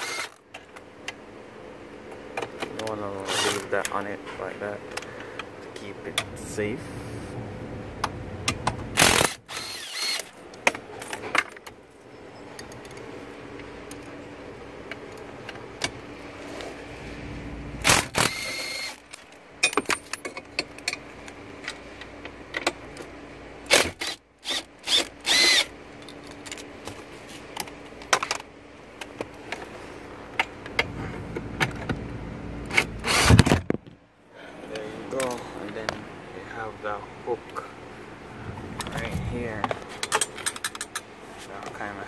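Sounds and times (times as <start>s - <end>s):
ratchet clicking: 9.0s - 10.3s.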